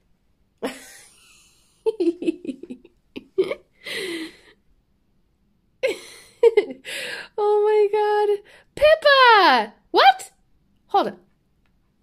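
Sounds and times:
woman giggling: 0:00.6 - 0:04.6, 0:05.8 - 0:06.9
woman gasping: 0:03.8 - 0:04.6, 0:06.8 - 0:07.4.

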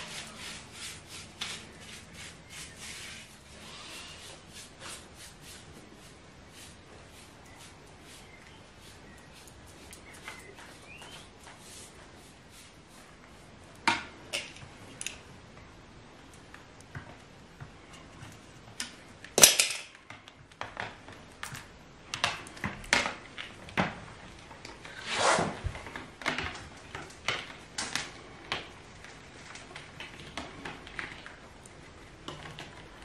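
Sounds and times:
short scrape: 0:00.0 - 0:05.6, 0:24.9 - 0:25.6.

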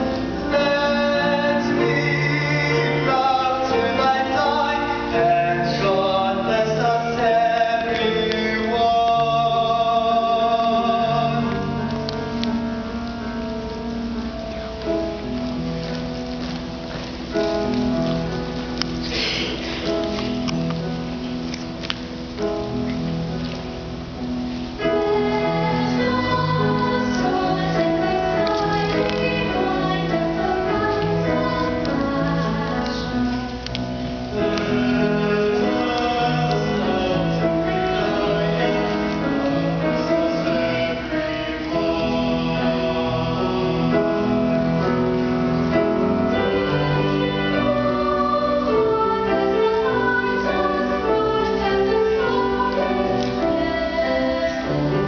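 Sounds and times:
choir of young singers: 0:00.0 - 0:13.4, 0:24.8 - 0:55.0.

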